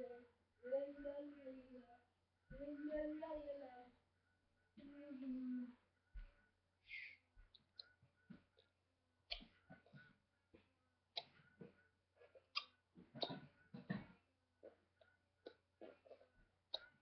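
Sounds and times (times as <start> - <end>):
irregular clicks and soft knocks: 7.3 - 17.0.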